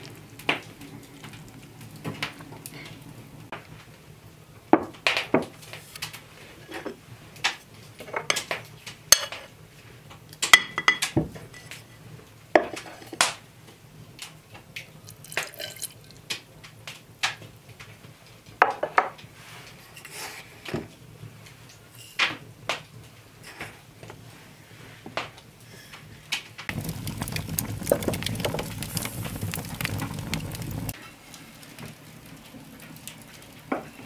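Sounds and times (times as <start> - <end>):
kitchenware clinking and knocking: 10.5 - 11.2.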